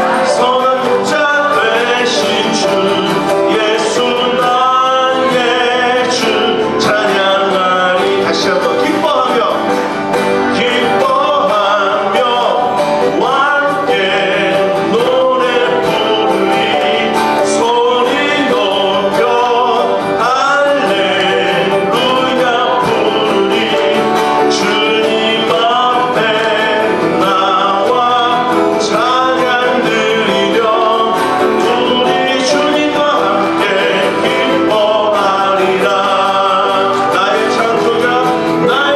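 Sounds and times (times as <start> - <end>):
acoustic guitar strumming: 0.0 - 38.9
man singing: 0.0 - 38.9.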